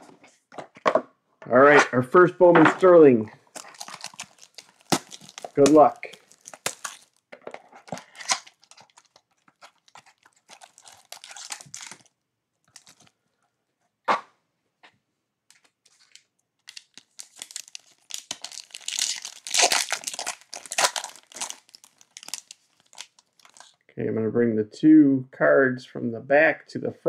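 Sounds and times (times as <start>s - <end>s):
card pack wrapper tearing: 3.4s - 7.2s, 7.8s - 12.1s, 12.7s - 13.1s, 15.6s - 23.8s.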